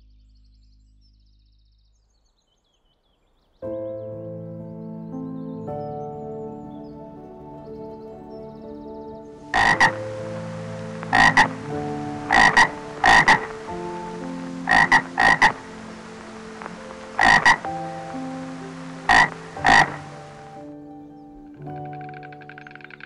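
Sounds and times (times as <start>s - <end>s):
frog croaking: 9.4s - 20.8s, 21.4s - 23.0s.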